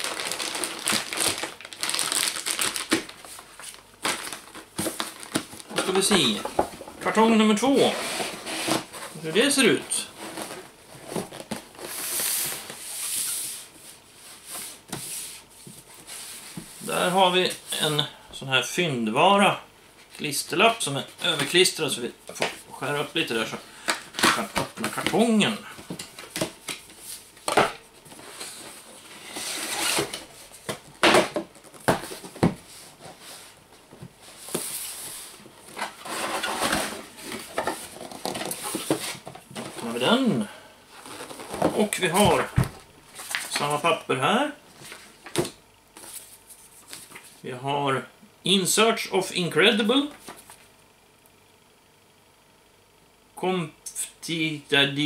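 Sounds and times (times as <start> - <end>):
cardboard scraping: 0.0 - 13.7, 28.1 - 40.0, 40.9 - 43.5.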